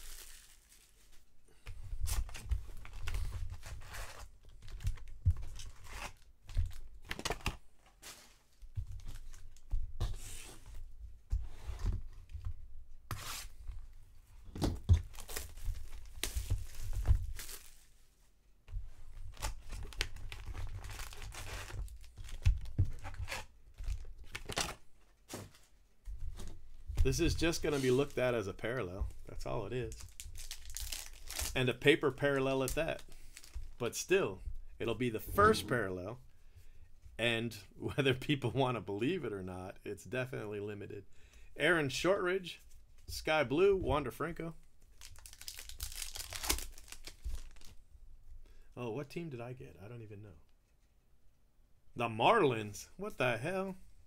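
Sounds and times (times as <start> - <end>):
foil wrappers crinkling and tearing: 0.0 - 1.2, 15.0 - 18.0, 19.3 - 24.8, 29.8 - 33.7, 44.9 - 47.8.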